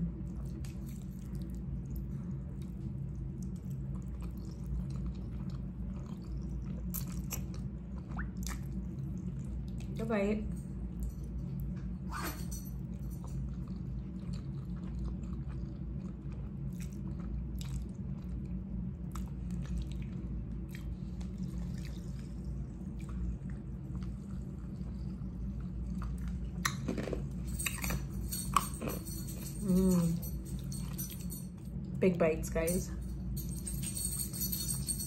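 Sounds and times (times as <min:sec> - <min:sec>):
person chewing: 0:03.4 - 0:08.8, 0:13.5 - 0:18.3.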